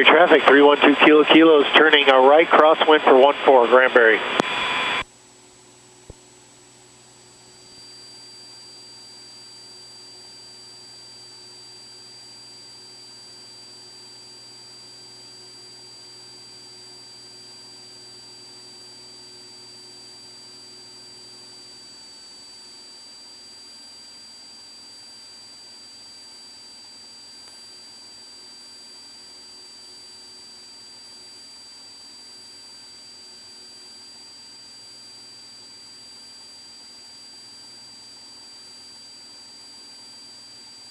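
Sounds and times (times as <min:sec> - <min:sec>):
faint low engine drone: 0:00.0 - 0:05.1
high-pitched whine: 0:00.0 - 0:05.1.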